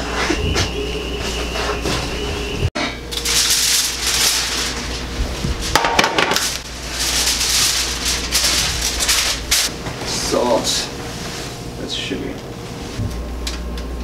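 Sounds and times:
aluminium foil crinkling: 3.1 - 9.7.

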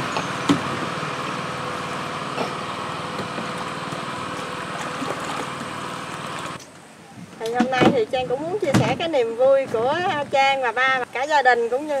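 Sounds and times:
boat engine running: 0.0 - 6.6.

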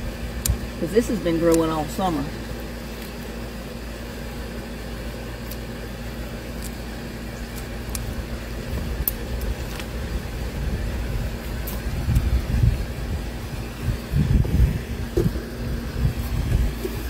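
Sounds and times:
steady low hum: 0.0 - 17.0
scissors snipping stems: 0.4 - 1.9
wind rumble on microphone: 7.9 - 17.0.

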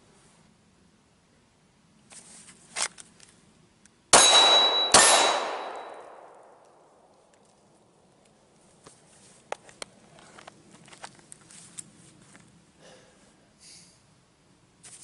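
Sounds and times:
pistol shots with echo: 4.1 - 7.1
metallic ring: 4.2 - 6.2.

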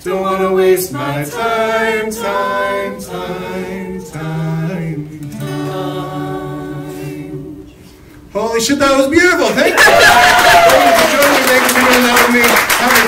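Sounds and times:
man singing: 0.0 - 5.6
group singing: 0.0 - 8.0
acoustic guitar: 0.0 - 8.4.

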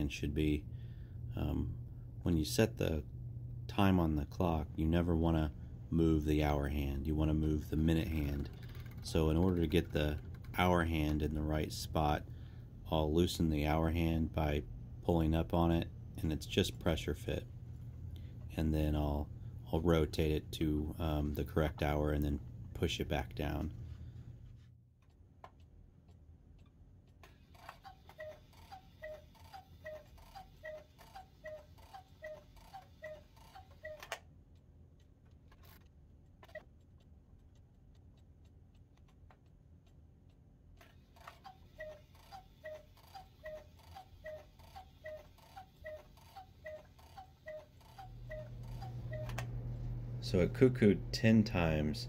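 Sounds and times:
clock ticking: 25.0 - 35.8, 36.4 - 49.3
cuckoo clock calls: 27.6 - 34.2, 41.2 - 49.4.

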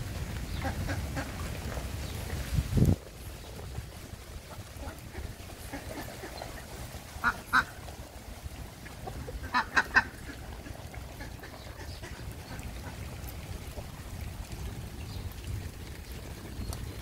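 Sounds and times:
ducks quacking: 0.5 - 1.6, 4.4 - 8.0, 8.8 - 13.8.

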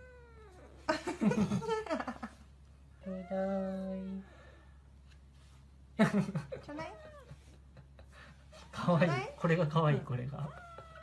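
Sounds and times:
kitten yowling and meowing: 0.0 - 0.8, 10.4 - 11.0.

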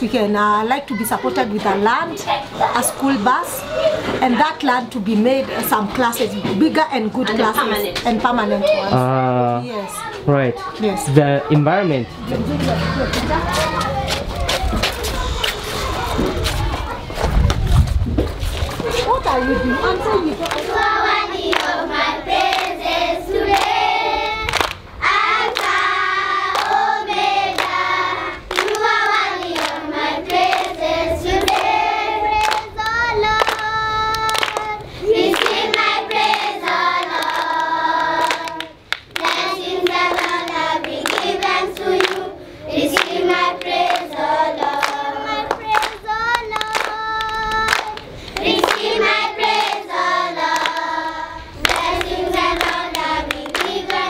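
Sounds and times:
hands clapping: 13.1 - 15.6, 20.4 - 20.7, 21.5 - 21.8, 23.5 - 23.8, 24.4 - 24.8, 25.5 - 25.7, 26.5 - 26.8, 28.5 - 30.7, 31.4 - 31.7, 32.4 - 42.3, 42.9 - 49.8, 50.5 - 50.9, 51.6 - 54.0
children singing together: 20.5 - 54.0.

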